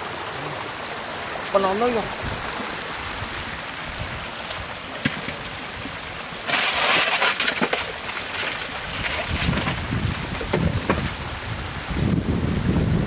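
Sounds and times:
floodwater trickling: 0.0s - 12.5s
splashing and sloshing in water: 2.3s - 11.5s.

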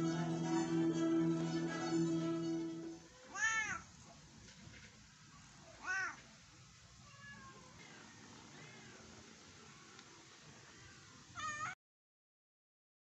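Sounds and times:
cat meowing: 3.3s - 3.8s, 5.8s - 6.2s, 7.0s - 7.8s, 10.8s - 11.8s.

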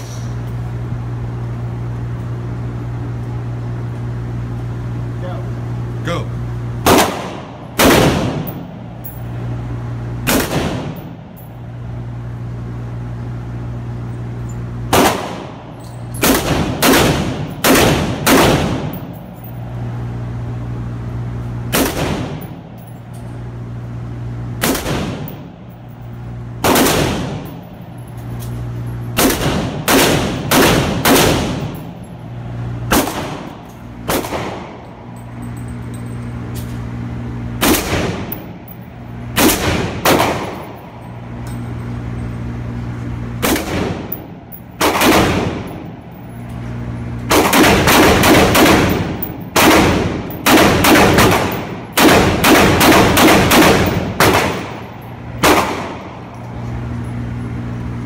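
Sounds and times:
steady low hum: 0.0s - 58.0s
rifle shots echoing indoors: 6.8s - 8.9s, 10.2s - 11.2s, 14.9s - 19.2s, 21.6s - 22.7s, 24.5s - 25.4s, 26.6s - 27.6s, 29.1s - 32.0s, 32.8s - 35.1s, 37.6s - 38.6s, 39.3s - 41.1s, 42.8s - 44.2s, 44.8s - 45.8s, 47.3s - 56.3s.

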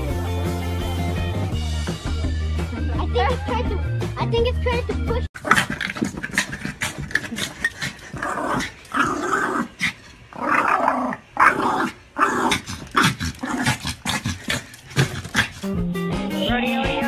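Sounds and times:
small dog growling: 5.4s - 15.8s.

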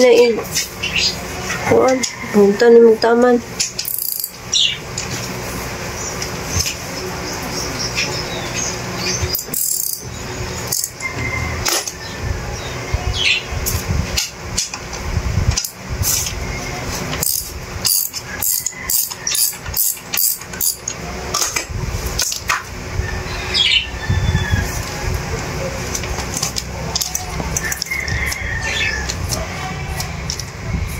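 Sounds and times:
birds chirping: 0.0s - 13.6s, 23.0s - 29.2s.

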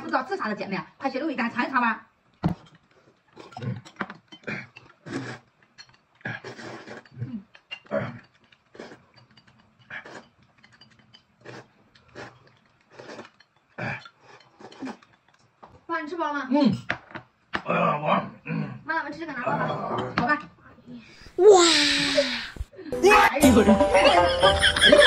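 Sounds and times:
slurping and gulping: 2.5s - 15.6s.

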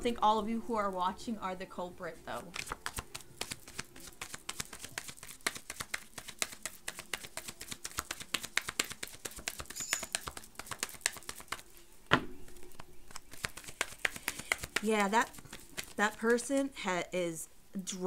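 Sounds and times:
cards shuffling clicks: 2.4s - 11.7s, 12.5s - 16.7s.

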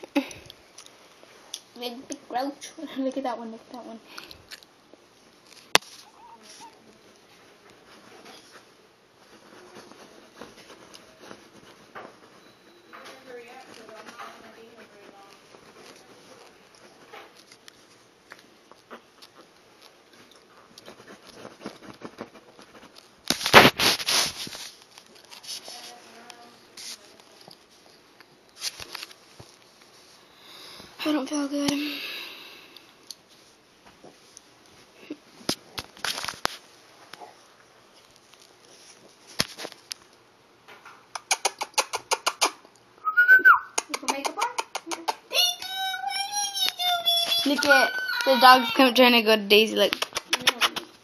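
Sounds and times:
puppies rustling on blankets: 5.0s - 31.7s, 33.2s - 40.2s, 45.4s - 50.0s
puppy whimpering: 6.0s - 6.8s, 43.1s - 43.7s.

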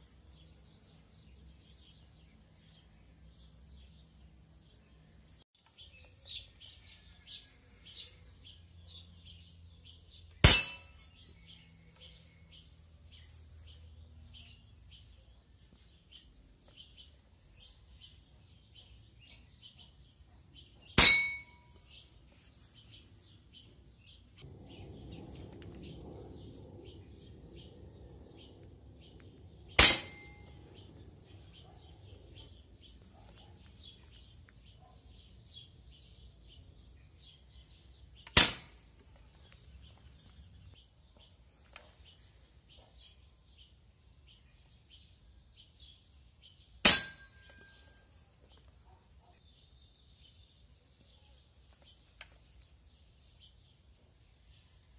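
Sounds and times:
birds chirping: 0.0s - 54.9s
metal target clanging: 10.4s - 11.4s, 21.0s - 21.8s, 29.7s - 30.7s, 38.3s - 38.9s, 46.9s - 47.9s.

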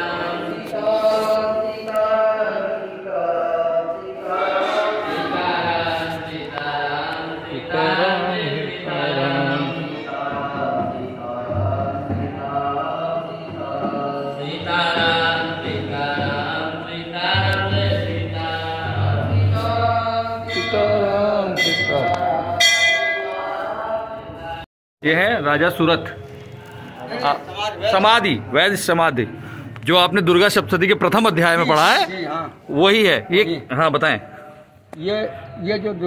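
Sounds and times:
men chanting: 0.0s - 24.7s.

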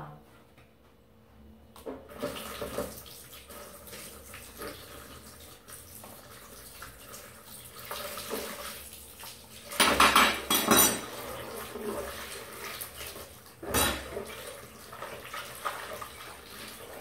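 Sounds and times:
tap water splashing into sink: 1.8s - 10.7s.

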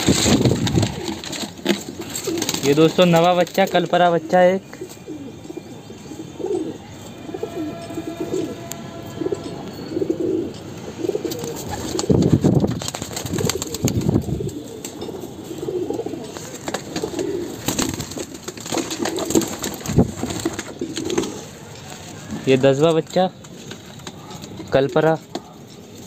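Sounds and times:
pigeon wings flapping: 0.0s - 3.8s, 11.3s - 15.0s, 16.2s - 21.5s
pigeons cooing: 0.0s - 22.9s.

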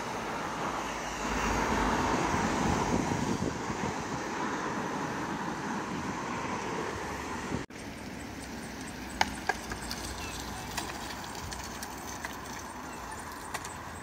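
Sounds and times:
distant traffic: 0.0s - 14.0s
wind: 0.0s - 14.0s
skateboard wooden clacks: 9.1s - 13.9s.

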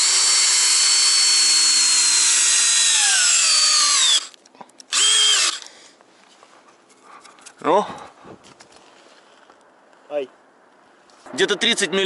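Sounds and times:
cordless drill driving screw: 0.0s - 5.7s.

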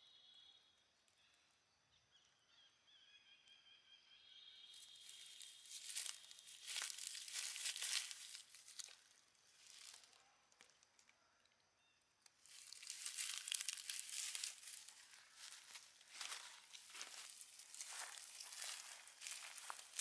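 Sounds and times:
dry leaves crackling and rustling: 4.8s - 10.1s, 12.4s - 20.0s.

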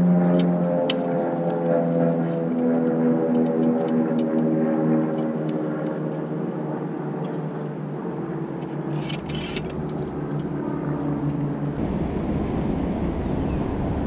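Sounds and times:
outdoor background noise: 0.0s - 14.0s
wind rumble on microphone: 9.2s - 14.0s.

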